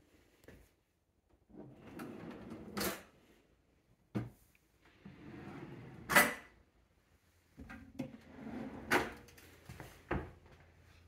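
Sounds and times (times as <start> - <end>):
drawers sliding and knocking: 1.5 - 3.1, 7.6 - 9.3.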